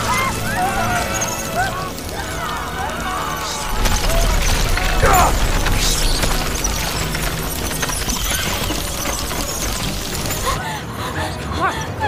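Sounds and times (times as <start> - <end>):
rats squeaking and scurrying: 0.0 - 10.6
low rumble: 2.0 - 8.2
man shouting: 5.0 - 5.5.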